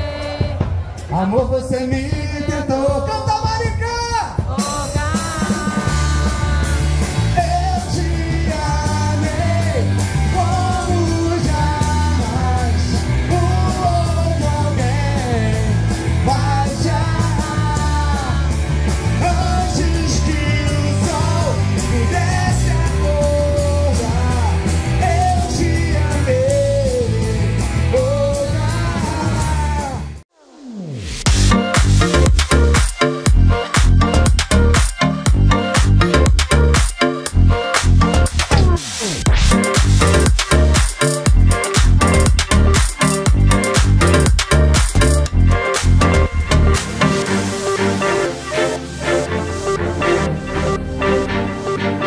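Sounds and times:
driving bass notes: 0:00.0 - 0:30.2, 0:31.3 - 0:52.0
man singing: 0:00.0 - 0:30.2
rock band playing: 0:00.0 - 0:30.2, 0:31.3 - 0:52.0.

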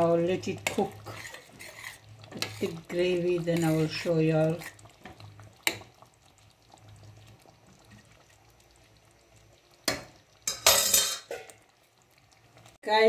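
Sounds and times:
curry simmering: 0:00.0 - 0:13.0
spoon clattering in pot: 0:09.9 - 0:11.6
spoon clinking against pot: 0:09.9 - 0:11.6.

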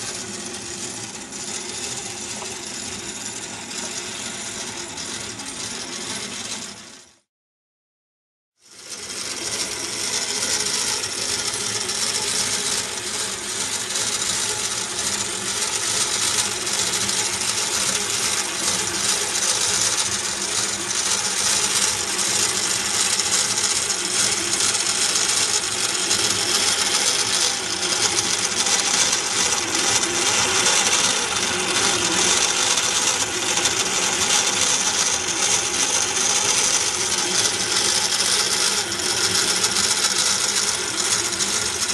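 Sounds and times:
model engine metallic clatter: 0:08.7 - 0:41.9.

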